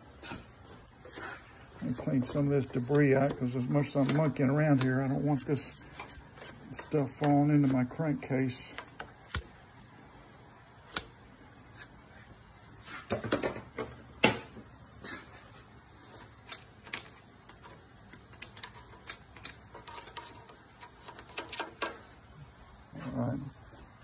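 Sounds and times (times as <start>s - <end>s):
small brush scrubbing: 1.0s - 7.9s
screwdriver scraping metal: 18.6s - 21.9s.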